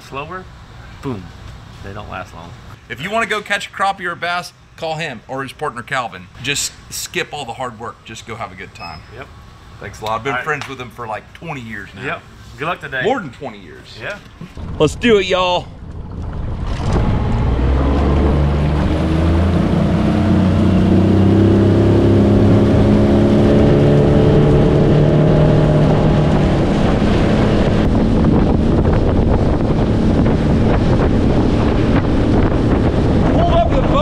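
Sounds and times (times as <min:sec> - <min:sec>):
outboard motor revving: 0:14.5 - 0:34.0
water rushing past hull: 0:14.5 - 0:34.0
wind on microphone: 0:14.5 - 0:34.0.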